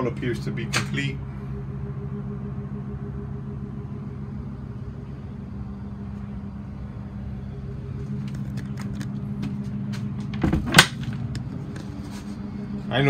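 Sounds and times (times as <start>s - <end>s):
low machine hum: 0.0s - 13.0s
handling clicks and rattles: 8.2s - 11.9s.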